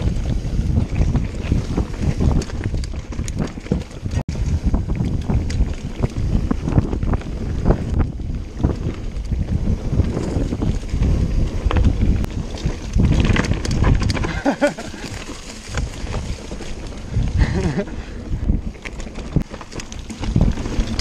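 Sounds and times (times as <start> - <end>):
bike clattering and rattling: 0.0 - 21.0
tyres rumbling on dirt: 0.0 - 21.0
wind rushing over microphone: 0.0 - 21.0.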